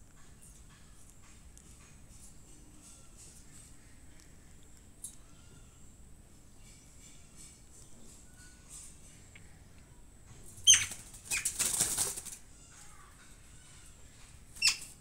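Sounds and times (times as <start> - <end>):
small animal squeaking: 10.6 - 11.8, 12.5 - 15.0.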